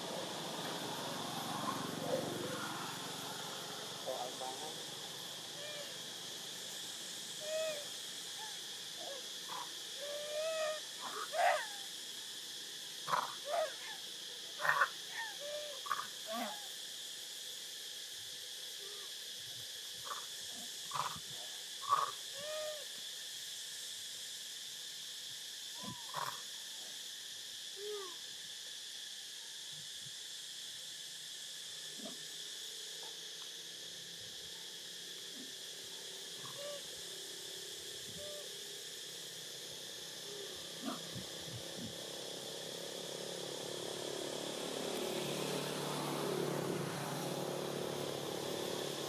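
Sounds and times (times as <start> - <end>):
infant monkey coo calls: 0.0 - 12.0, 12.9 - 16.9, 18.7 - 19.2, 19.9 - 23.1, 25.7 - 27.0, 27.7 - 28.3, 32.0 - 32.3, 35.3 - 38.7, 40.2 - 42.2
steady high-pitched hiss: 0.0 - 49.0.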